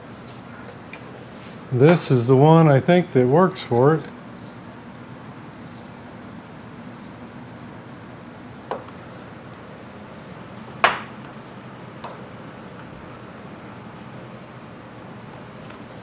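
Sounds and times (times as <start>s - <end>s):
metal tools clanking: 3.5s - 4.2s.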